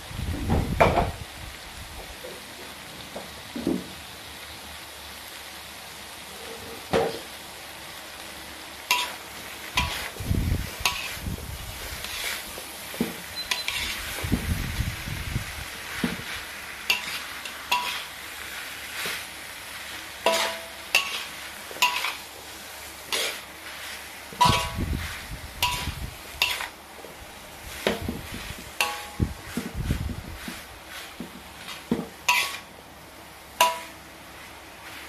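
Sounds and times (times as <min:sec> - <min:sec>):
frying sizzle: 0:00.0 - 0:35.0
metal spatula scraping a wok: 0:08.9 - 0:14.3, 0:15.8 - 0:26.8, 0:27.4 - 0:32.7, 0:33.6 - 0:35.0.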